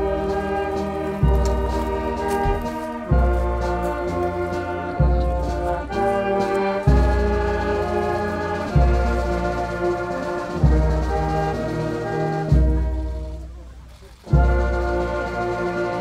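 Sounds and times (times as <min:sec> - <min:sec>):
slow instrumental chords: 0:00.0 - 0:08.8.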